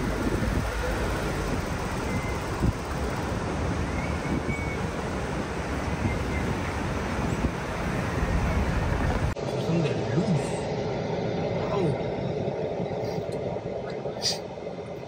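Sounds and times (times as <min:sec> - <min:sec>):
wind buffeting microphone: 0:00.0 - 0:09.4
engine and tyre rumble: 0:00.0 - 0:15.0.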